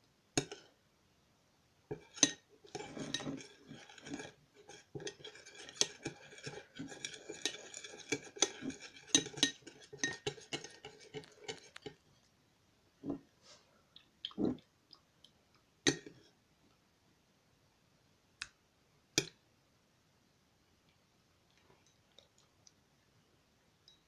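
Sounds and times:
metal spoon clinking in glass bowl: 1.9s - 11.9s.

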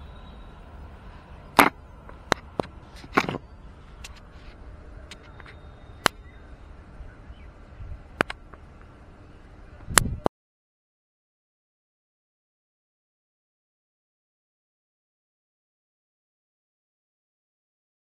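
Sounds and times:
camera handling clicks and knocks: 1.6s - 3.4s.

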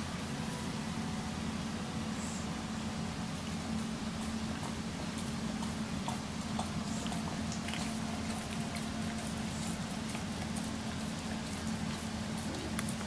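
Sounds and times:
dogs breathing noisily: 3.5s - 13.0s
mouth smacks and clicks: 4.6s - 13.0s.

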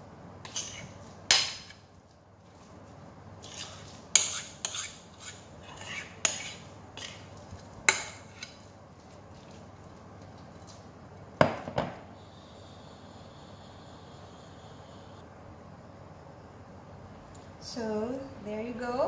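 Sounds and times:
spatula scraping glass bowl: 0.5s - 1.0s, 3.4s - 8.6s.

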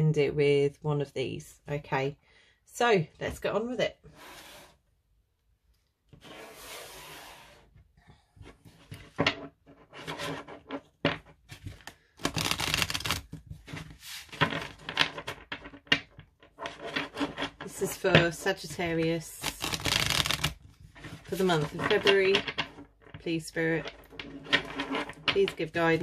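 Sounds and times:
cards being shuffled: 11.5s - 15.8s, 19.4s - 22.4s.

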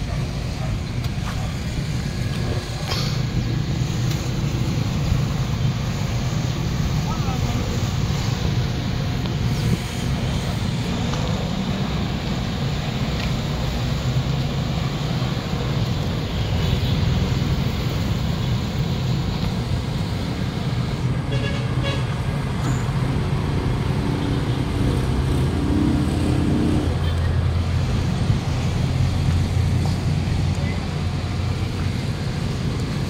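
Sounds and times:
vehicle engine rumbling: 0.0s - 33.0s.

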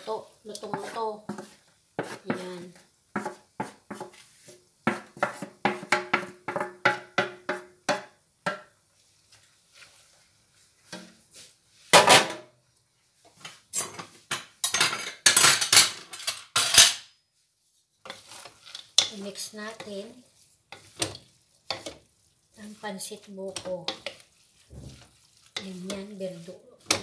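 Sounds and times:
cookware clattering: 13.7s - 17.1s.

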